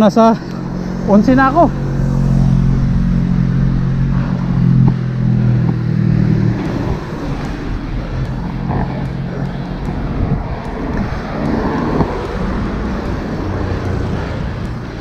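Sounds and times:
vehicle engine humming: 0.0 - 15.0
wind rumbling on microphone: 0.0 - 15.0.

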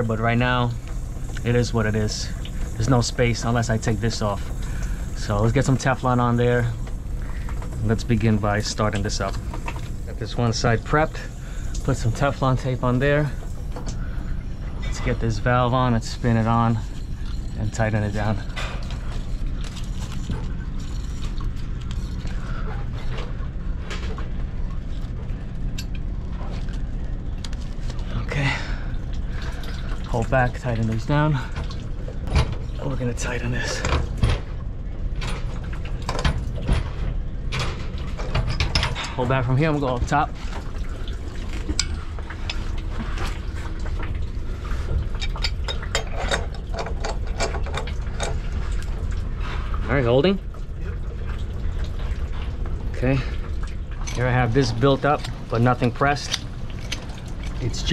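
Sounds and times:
low machinery hum: 0.0 - 57.9
pipe wrenches clicking and scraping: 14.8 - 23.3, 37.5 - 40.0, 44.8 - 49.0, 54.0 - 57.9
clicks of pipe fittings: 45.0 - 48.9, 54.0 - 57.7.

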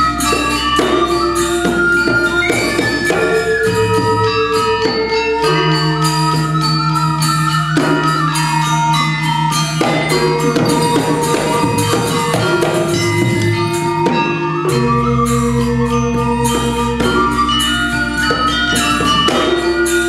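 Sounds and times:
hand drums: 0.0 - 20.0
metallophones struck with mallets: 0.0 - 20.0.

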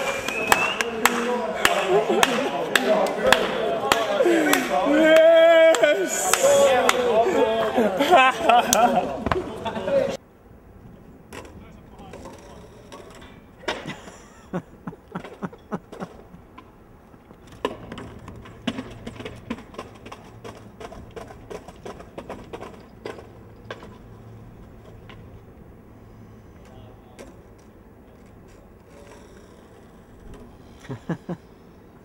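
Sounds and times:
skateboard set down: 17.4 - 25.4.

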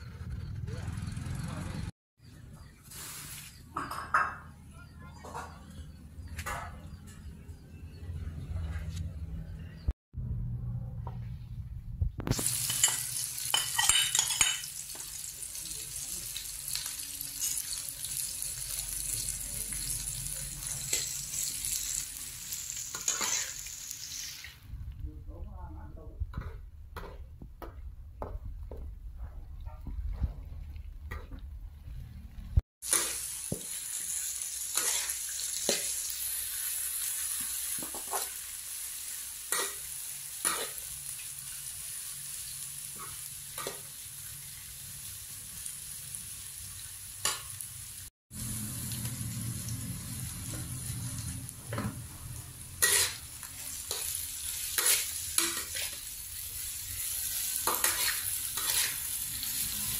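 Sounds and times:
food sizzling in oil: 12.2 - 24.7, 32.8 - 59.9
metal spatula scraping wok: 20.6 - 24.5, 34.7 - 38.4, 50.4 - 59.9.

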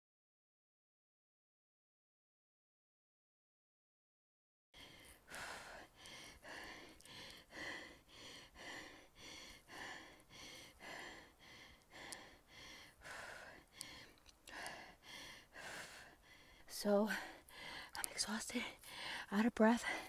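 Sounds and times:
woman panting hard: 4.8 - 18.0, 18.6 - 20.0.

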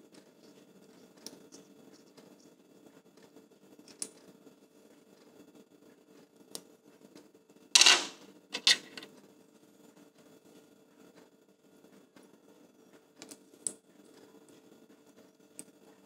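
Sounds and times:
metal screws clinking on table: 7.8 - 9.1
metal screws rattling: 7.8 - 9.1.

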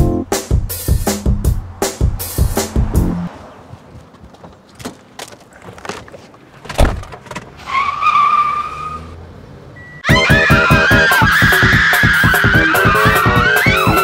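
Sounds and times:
music: 0.0 - 3.3, 10.0 - 14.0
car door slamming: 6.6 - 7.5.

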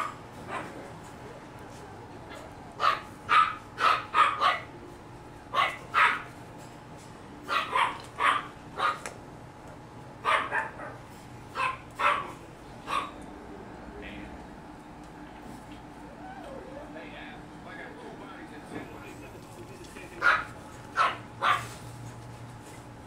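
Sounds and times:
puppy barking: 0.0 - 0.8, 2.3 - 4.7, 5.5 - 6.3, 7.4 - 9.1, 10.2 - 13.2, 20.2 - 21.8.

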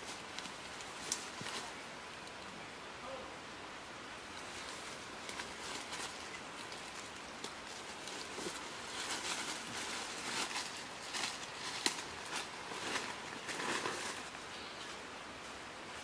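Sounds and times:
dry leaves rustling and crackling: 0.0 - 2.3, 4.4 - 15.0
steady background hiss: 0.0 - 16.0
bare feet stepping through leaves: 4.6 - 14.3.

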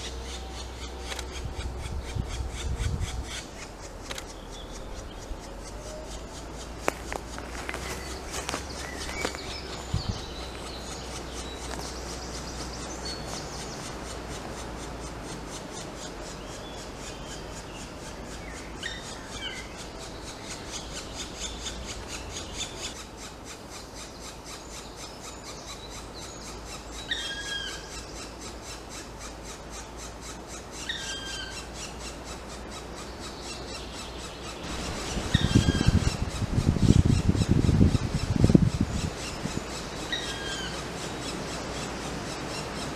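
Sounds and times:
nestlings begging chatter: 0.0 - 42.9
low rumbling microphone noise: 4.7 - 15.3.

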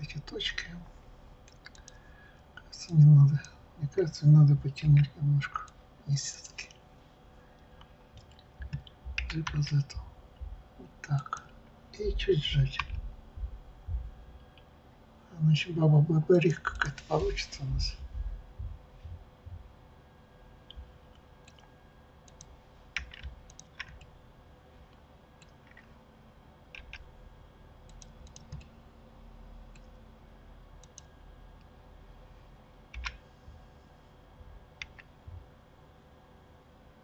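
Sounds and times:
faint steady hum: 0.0 - 37.0
mouse and keyboard clicks: 22.3 - 24.1, 26.7 - 27.0, 27.9 - 28.7, 32.9 - 33.2, 34.8 - 35.1.

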